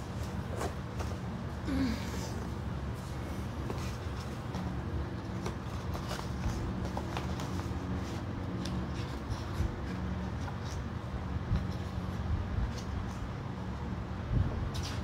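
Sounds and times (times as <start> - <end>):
steady low hum: 0.0 - 15.0
paper pages rustling: 3.0 - 13.2.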